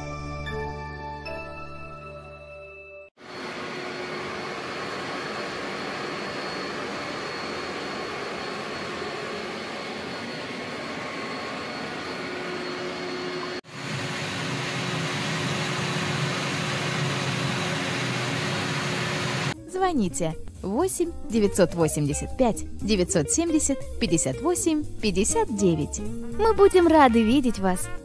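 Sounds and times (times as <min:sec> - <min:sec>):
vacuum cleaner running: 0:03.2 - 0:19.6.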